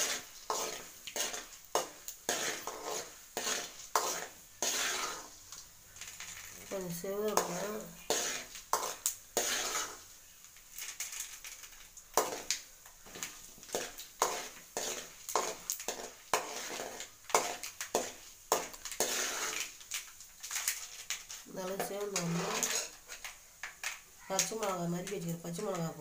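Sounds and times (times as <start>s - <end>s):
ladle scraping a metal pan: 0.0s - 5.4s, 7.3s - 10.1s, 10.8s - 12.5s, 13.1s - 19.8s, 20.4s - 23.3s
oil sizzling: 0.0s - 26.0s.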